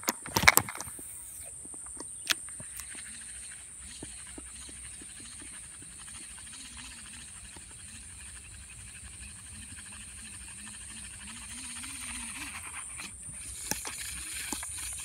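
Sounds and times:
sharp clicks: 1.6 - 3.1
fishing reel cranking whirr: 2.7 - 15.0.

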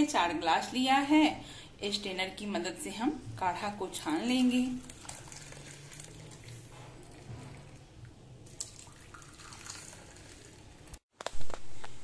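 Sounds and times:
liquid trickling and dripping: 4.8 - 11.0.

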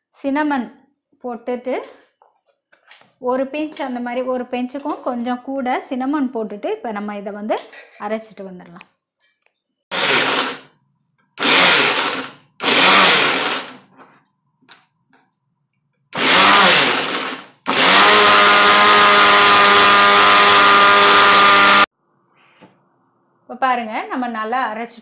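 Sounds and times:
mixer grinder whining: 9.9 - 10.7, 11.4 - 13.9, 16.2 - 21.9.

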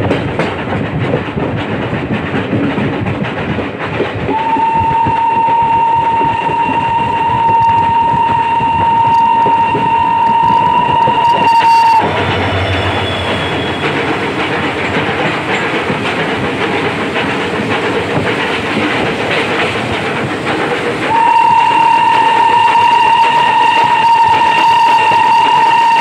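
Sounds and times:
wheels rattling over rails: 0.0 - 26.0
steam locomotive whistle: 4.3 - 14.1, 21.0 - 26.0.

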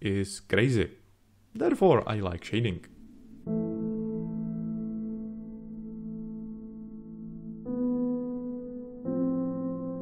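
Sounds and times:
held new-age chord: 2.9 - 10.0.

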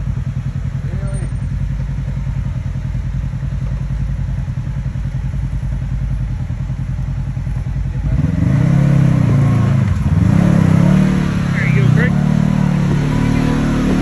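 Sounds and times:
utility vehicle engine revving: 5.5 - 14.0.

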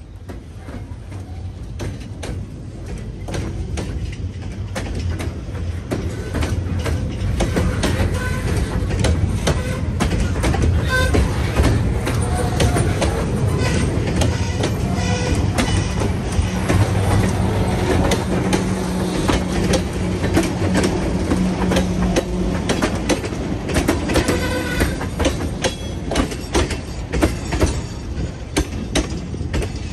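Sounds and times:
train wheels clacking over rail joints: 0.0 - 29.9
high wheel squeal: 12.1 - 16.6.

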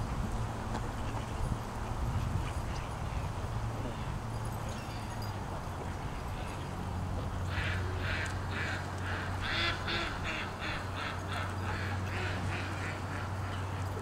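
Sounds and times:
duck quacking: 7.5 - 13.6.

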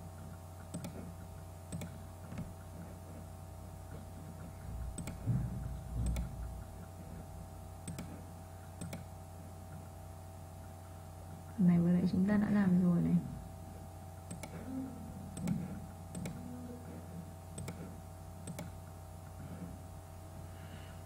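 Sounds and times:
electrical hum: 0.0 - 21.0
computer mouse clicking: 0.2 - 2.8, 4.4 - 5.2, 6.0 - 6.9, 7.8 - 8.2, 8.8 - 9.1, 14.2 - 14.6, 15.3 - 16.5, 17.5 - 18.8
low dull bumps: 4.6 - 7.3.

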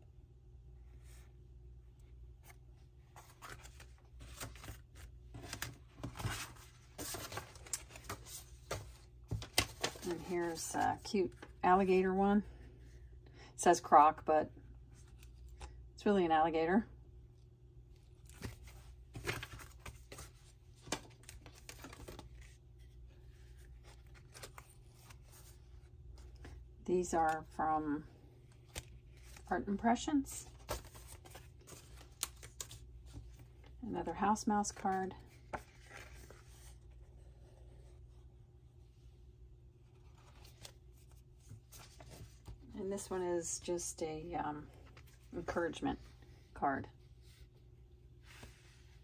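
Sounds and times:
paper card rustling: 2.4 - 11.6, 18.2 - 26.6, 30.4 - 33.5, 34.6 - 38.0, 39.8 - 42.6
cardstock cards rustling and scraping: 18.2 - 26.6, 34.7 - 38.0.

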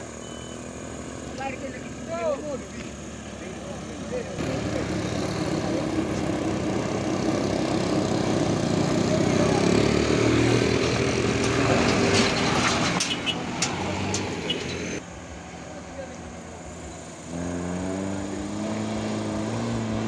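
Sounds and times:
diesel truck engine labouring: 0.0 - 20.0
minibus engine climbing: 0.0 - 20.0
sharp clicks and knocks: 10.8 - 15.0.

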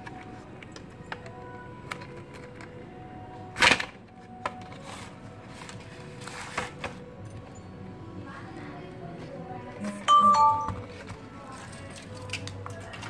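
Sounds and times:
soft background music: 0.0 - 13.0
sharp plastic crack: 3.6 - 4.6.

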